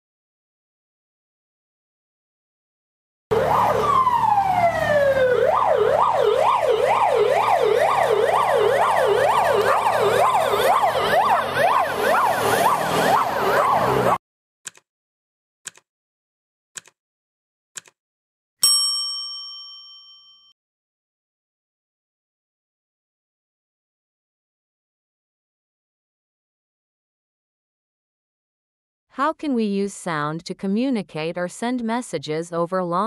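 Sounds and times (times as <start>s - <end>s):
ambulance siren: 3.3s - 14.2s
timer ticks: 15.7s - 15.9s, 16.8s - 17.0s, 17.8s - 18.0s
ringing ding: 18.6s - 20.6s.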